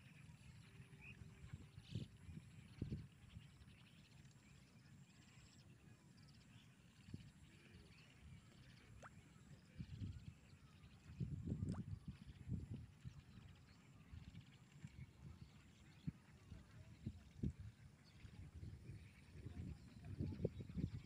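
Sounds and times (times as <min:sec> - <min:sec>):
faint bird chirps: 0:00.0 - 0:21.0
wind gusts on microphone: 0:11.1 - 0:13.0, 0:16.6 - 0:21.0.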